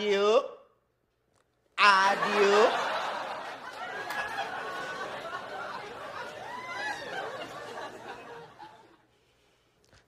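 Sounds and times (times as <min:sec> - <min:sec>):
group of people laughing: 0:01.9 - 0:09.1.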